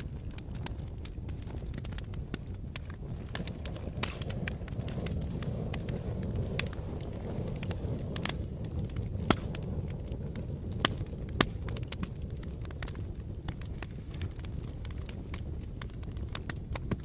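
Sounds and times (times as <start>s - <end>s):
fire crackling and popping: 0.0s - 17.0s
fire flames rumbling: 0.0s - 17.0s.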